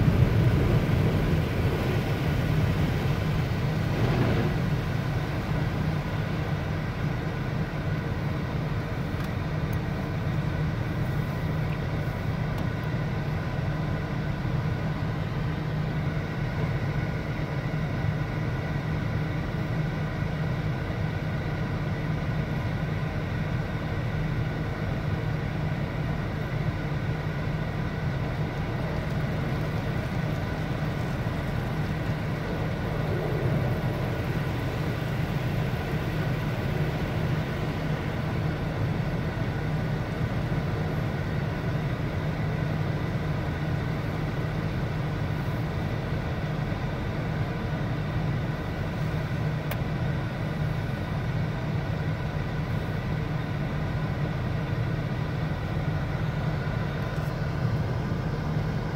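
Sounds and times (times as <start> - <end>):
car wash machinery whirring: 0.0 - 58.9.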